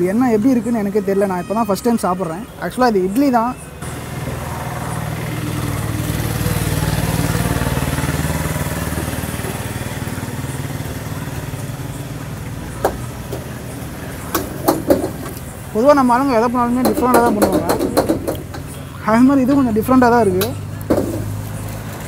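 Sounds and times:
vehicle engine passing: 3.6 - 22.0.

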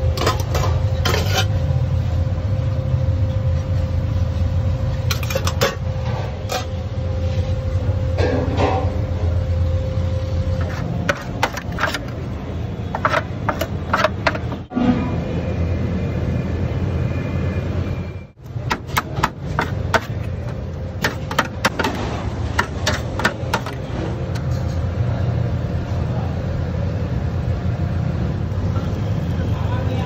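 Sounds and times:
low rumble of a shop: 0.0 - 30.0
utensils tapping on metal tray: 12.9 - 14.7, 21.0 - 23.8.

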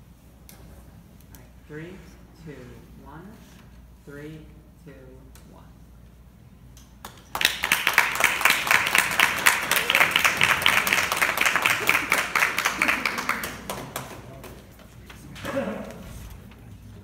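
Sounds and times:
audience applauding: 7.2 - 14.8.

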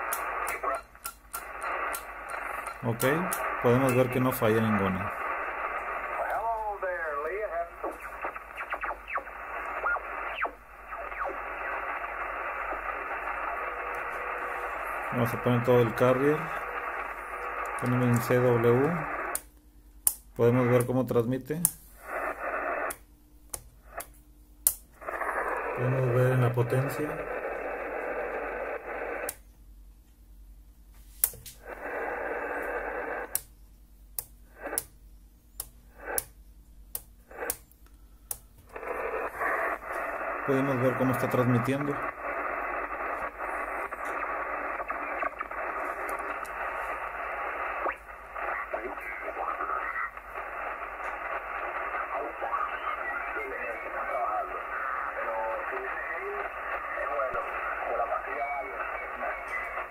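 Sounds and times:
radio relay clicks: 0.0 - 4.1
radio band hiss: 0.0 - 19.5, 20.3 - 23.0, 23.8 - 24.1, 25.0 - 29.4, 31.0 - 33.6, 34.4 - 35.0, 35.6 - 37.7, 38.6 - 59.9.

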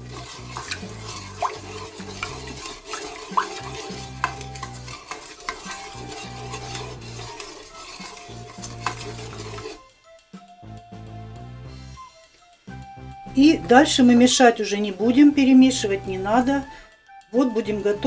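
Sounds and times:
plastic paddle scraping bowl: 0.0 - 9.8.

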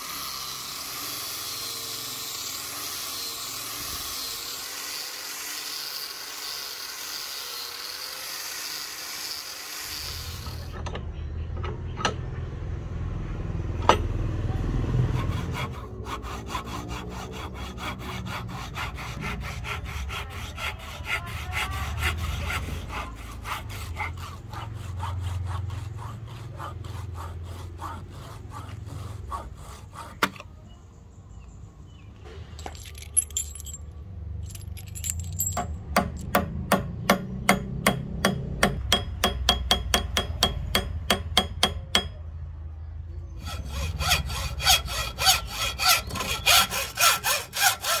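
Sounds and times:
hand sawing wood: 0.0 - 10.8, 14.8 - 30.5, 36.0 - 42.1, 43.4 - 48.0.

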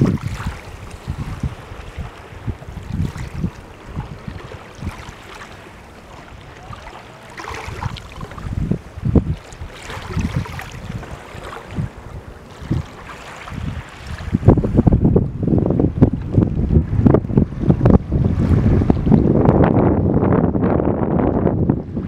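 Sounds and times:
small ripples on shore: 0.0 - 14.5
wind buffeting microphone: 0.0 - 22.0.

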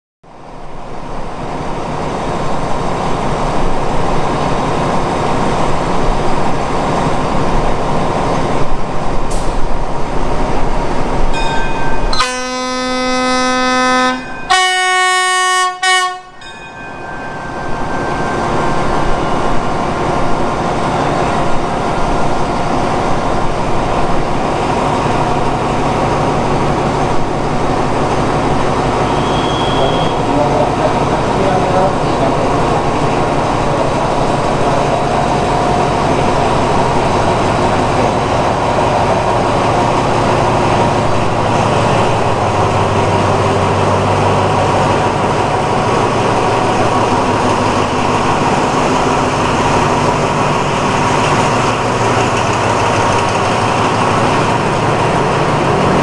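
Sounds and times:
diesel locomotive engine running: 0.3 - 56.0
train horn blasts: 12.1 - 16.4, 29.1 - 30.3.

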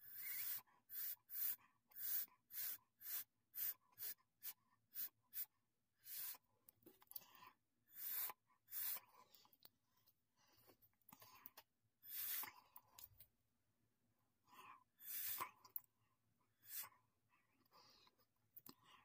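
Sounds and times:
breath puffs through a straw: 0.0 - 6.5, 7.2 - 9.6, 10.5 - 12.8, 14.6 - 15.6, 16.6 - 17.0.

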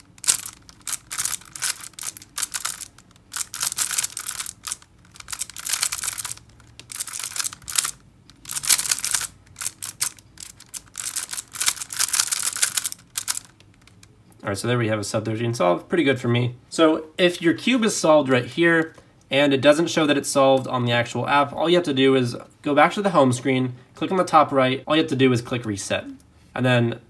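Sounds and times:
plastic cube layers clicking: 0.0 - 14.1.

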